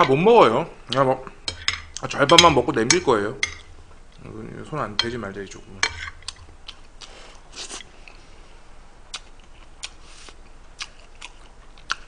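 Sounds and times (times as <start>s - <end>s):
soft chewing: 6.0s - 12.0s.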